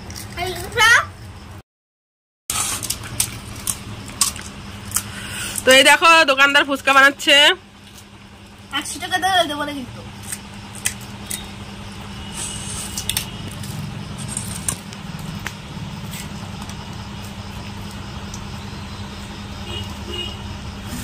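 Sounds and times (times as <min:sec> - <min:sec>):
steady low hum: 0:02.5 - 0:21.0
shells cracking and clicking: 0:02.9 - 0:05.6.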